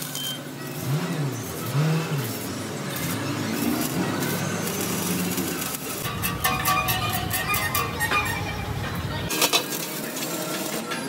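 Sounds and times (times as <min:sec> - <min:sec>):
engine revving: 0:00.7 - 0:06.3
arc welding crackling hiss: 0:01.4 - 0:06.2, 0:09.3 - 0:11.0.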